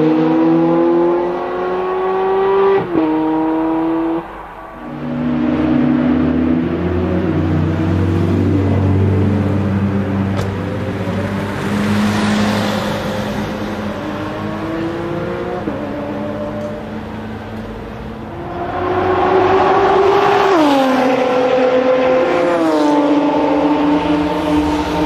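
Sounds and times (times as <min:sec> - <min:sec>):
car engine accelerating: 0:00.0 - 0:25.0.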